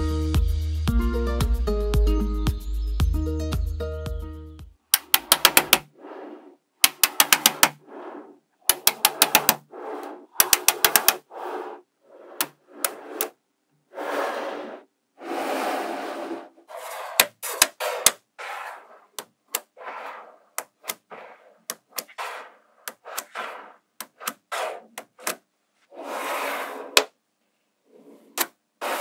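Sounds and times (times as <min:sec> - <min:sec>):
magnetic balls clicking together: 0:04.9 - 0:05.9, 0:06.8 - 0:07.8, 0:08.6 - 0:09.7, 0:10.3 - 0:11.3, 0:20.5 - 0:25.4
magnetic balls rattling and scraping: 0:05.0 - 0:27.2.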